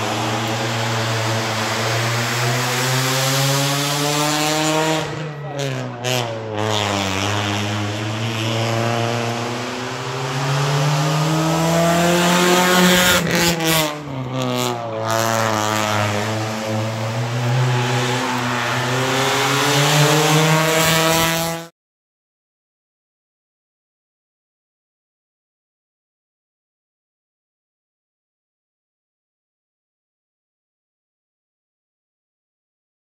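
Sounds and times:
rally car engine accelerating: 0.0 - 21.7.

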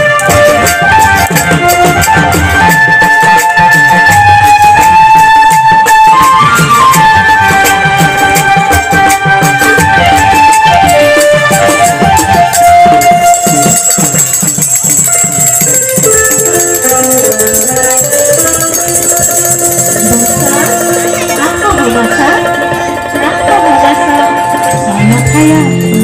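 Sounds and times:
melody of held notes: 0.0 - 26.0
quick percussion strokes: 0.0 - 26.0
brass hand cymbals ringing: 13.2 - 26.0.

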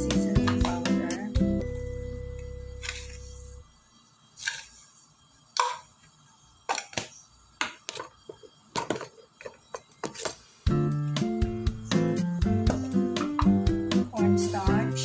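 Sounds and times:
guitar music: 0.0 - 2.4, 10.7 - 15.0.

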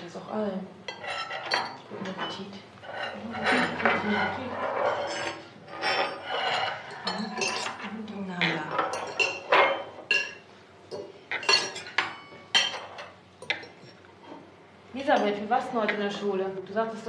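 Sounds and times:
cutlery clinking on plates: 0.9 - 14.4.

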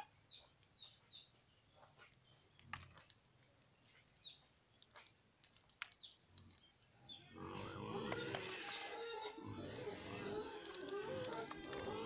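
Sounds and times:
corn kernels clicking: 2.6 - 3.7, 4.7 - 6.9, 7.9 - 12.0.

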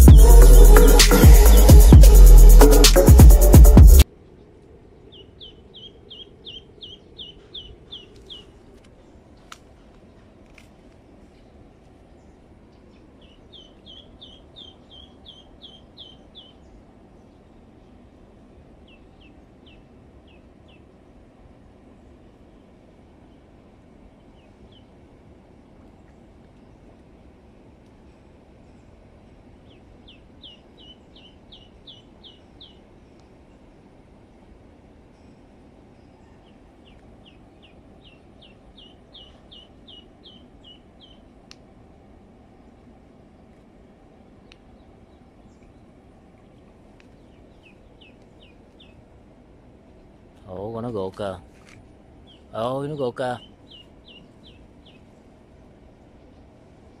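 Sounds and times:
low background noise: 4.0 - 57.0
small bird chirping: 5.1 - 8.6, 12.9 - 16.7, 36.0 - 41.3, 53.3 - 55.1
duckling peeping: 13.2 - 16.6.

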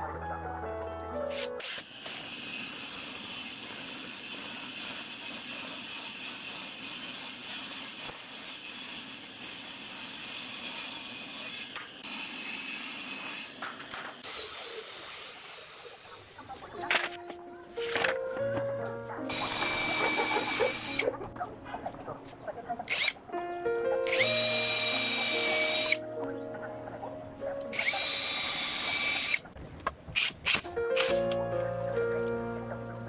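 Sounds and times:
table saw ripping a board: 1.5 - 15.6
handheld router running: 1.6 - 13.6, 19.3 - 21.1, 22.9 - 23.2, 24.1 - 26.0, 27.7 - 29.4.

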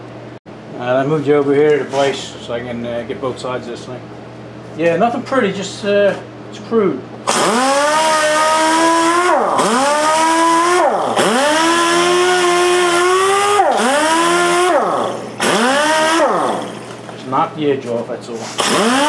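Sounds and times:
pneumatic sander whining on wood: 7.3 - 17.0, 18.6 - 19.0.

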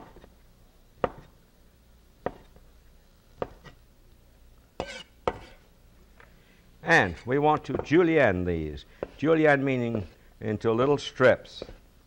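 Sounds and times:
knife scrape: 4.8 - 5.6, 10.8 - 11.8.

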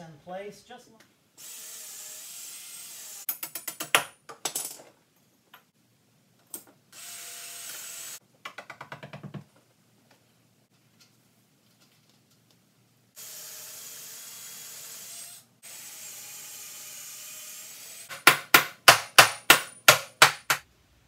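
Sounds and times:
cordless drill boring wood: 1.4 - 3.3, 7.0 - 8.2, 13.2 - 18.1.

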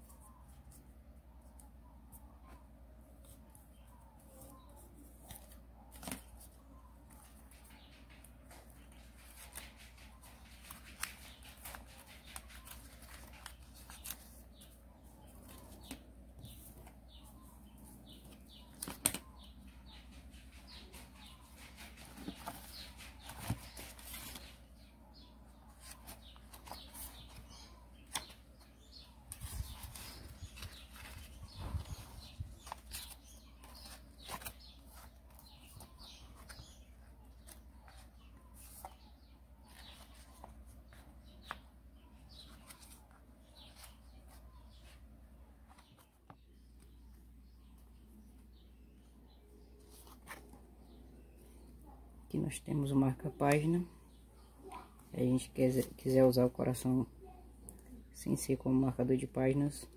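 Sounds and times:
book pages rustling: 3.2 - 48.6, 49.7 - 51.7
paper rustling and crinkling: 4.2 - 6.6, 7.2 - 24.8, 25.7 - 39.0, 49.8 - 50.6.

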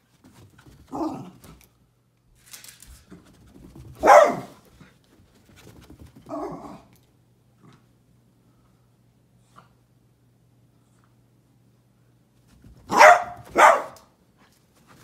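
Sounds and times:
dog barking: 4.0 - 4.6, 12.9 - 14.1.

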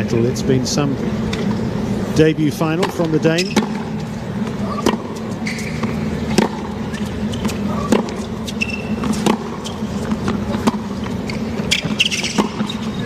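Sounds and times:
stadium crowd hum: 0.0 - 13.0
tennis racket hitting ball: 2.8 - 4.0, 4.6 - 13.0.

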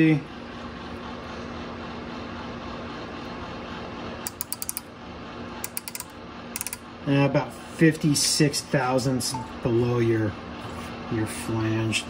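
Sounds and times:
room hum: 0.0 - 12.0
micrometer ratchet clicking: 4.3 - 4.9, 5.6 - 6.8.

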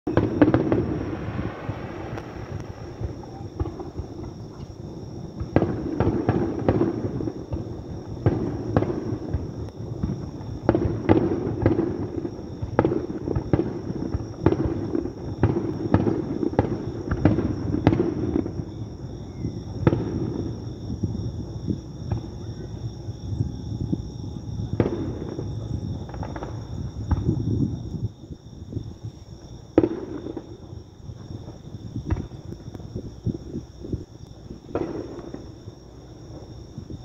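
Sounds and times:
fireworks bursting with sharp bangs: 0.1 - 37.0
low rumble: 20.8 - 28.1.

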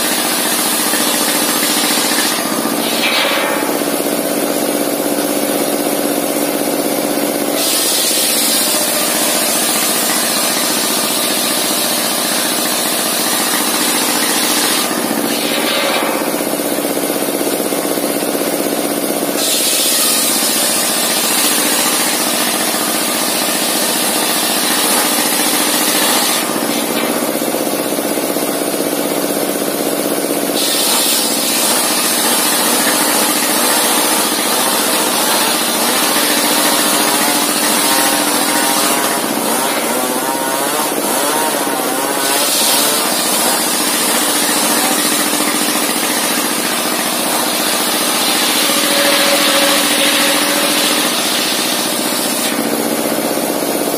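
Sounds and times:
saw cutting timber hiss: 0.0 - 18.2, 19.3 - 28.4, 30.4 - 53.6
circular saw blade humming: 30.5 - 53.3.

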